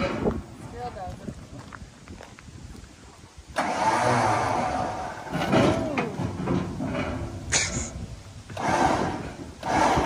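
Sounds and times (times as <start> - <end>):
electric winch running: 3.6 - 6.3, 8.5 - 10.0
short hiss: 7.5 - 8.1.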